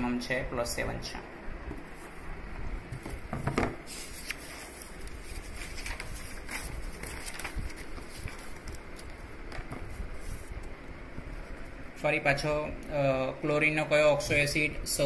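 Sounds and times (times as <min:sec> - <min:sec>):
paper rustling: 0:02.9 - 0:11.7.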